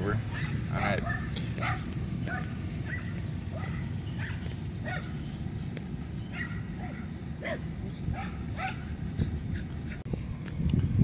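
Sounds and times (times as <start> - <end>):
dog barking: 0.3 - 5.2, 6.3 - 8.9.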